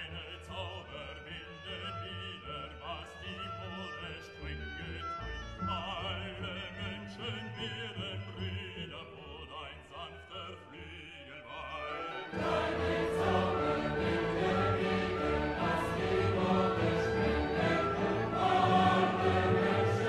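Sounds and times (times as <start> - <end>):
operatic voice singing: 0.0 - 20.0
choir singing: 11.6 - 20.0.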